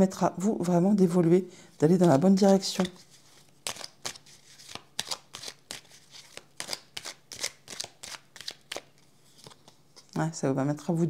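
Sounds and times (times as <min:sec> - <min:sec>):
cards shuffling: 0:01.8 - 0:10.1.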